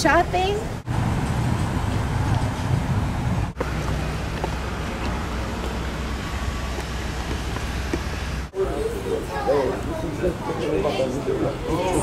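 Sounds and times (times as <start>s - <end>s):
low wind rumble: 0.0s - 9.2s
traffic: 0.0s - 12.0s.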